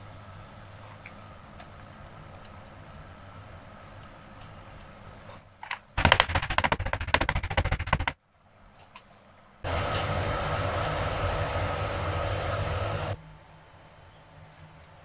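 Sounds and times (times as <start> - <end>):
steady rushing noise: 6.0 - 8.2.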